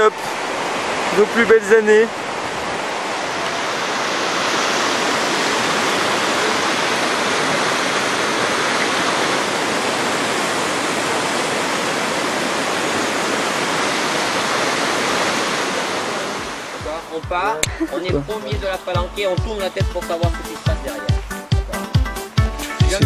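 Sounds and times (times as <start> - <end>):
river rapids rushing: 0.0 - 21.8.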